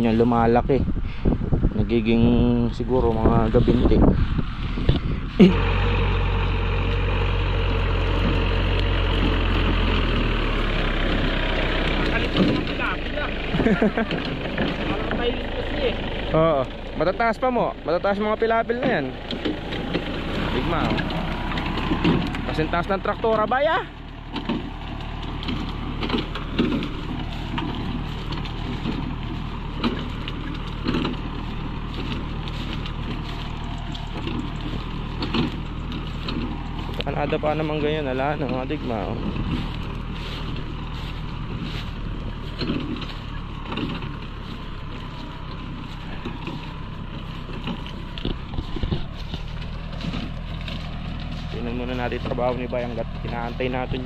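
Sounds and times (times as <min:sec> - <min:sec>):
wind buffeting microphone: 0:00.0 - 0:05.5, 0:24.6 - 0:54.0
tractor engine running: 0:00.0 - 0:54.0
stalks crackling: 0:02.6 - 0:54.0.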